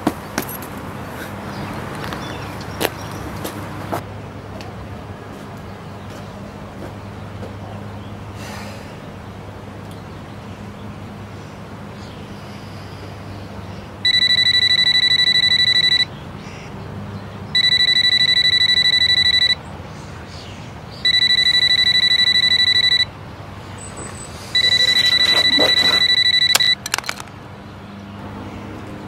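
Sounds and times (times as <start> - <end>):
electronic alarm beeping: 14.0 - 16.1, 17.6 - 19.6, 21.0 - 23.1, 24.6 - 27.2.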